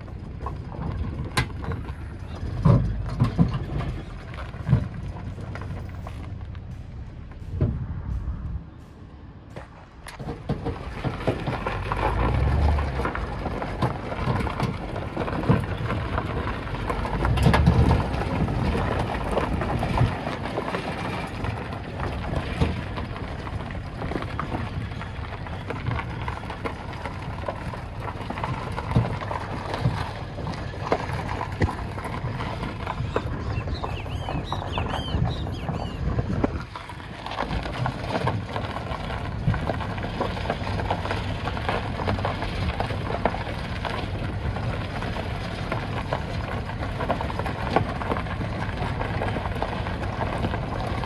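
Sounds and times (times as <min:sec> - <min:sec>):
knocks and rattles: 0:00.0 - 0:51.0
low rumbles: 0:00.0 - 0:51.0
road and wind noise: 0:00.0 - 0:51.0.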